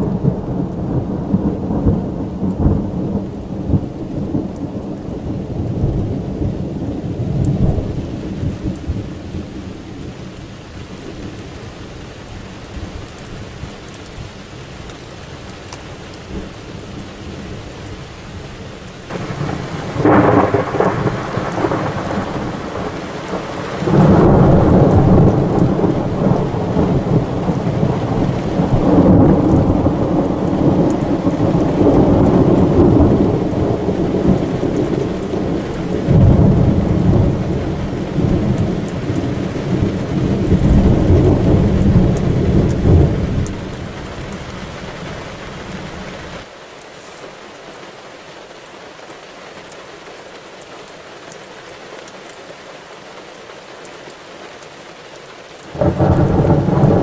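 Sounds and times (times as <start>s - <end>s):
steady rain: 0.0s - 57.0s
thunder rolling: 19.1s - 46.1s, 55.8s - 57.0s.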